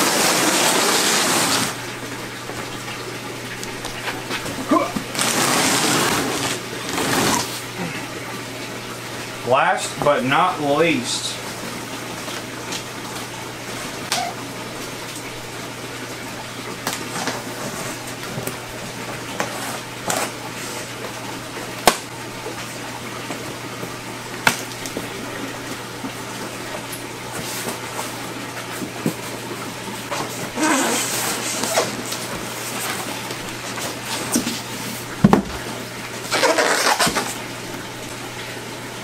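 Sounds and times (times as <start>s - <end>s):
running water from aquarium filter: 0.0s - 39.0s
cardboard box flaps rustling: 5.0s - 7.6s.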